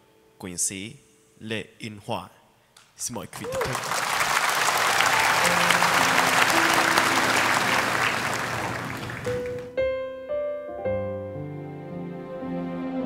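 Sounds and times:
audience applause: 3.3s - 9.8s
keyboard playing slow ballad: 5.0s - 13.0s.

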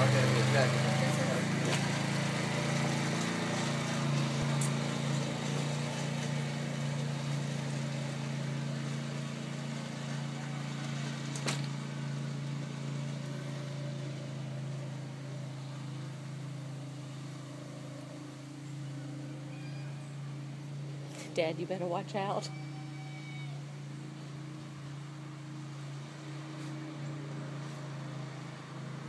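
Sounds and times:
atv engine running: 0.0s - 29.0s.

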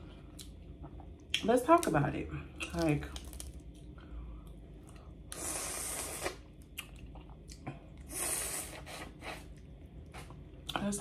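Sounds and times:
crawfish shells cracking: 2.6s - 3.9s
hissing slurps: 5.4s - 6.4s.

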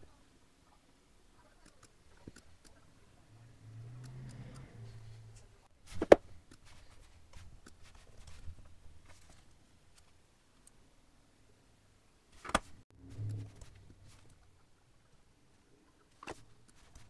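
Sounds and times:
low hum: 12.9s - 15.9s.

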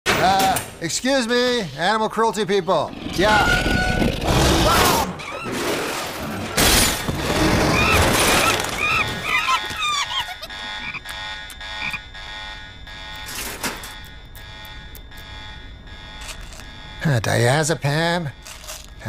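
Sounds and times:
squeaky animal calls: 2.6s - 5.7s, 7.2s - 11.2s
cartoon crash: 3.2s - 10.5s.

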